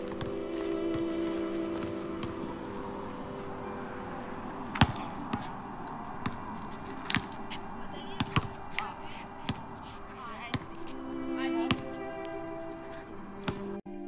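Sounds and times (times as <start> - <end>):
basketball bouncing on hard court: 8.1 - 9.7, 10.5 - 10.7, 13.4 - 13.6.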